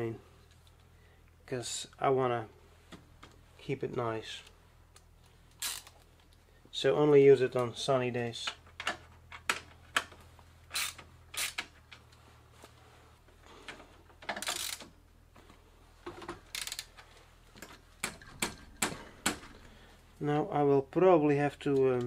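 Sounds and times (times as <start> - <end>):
wrench clicking on metal nut: 14.4 - 14.9, 16.5 - 16.9.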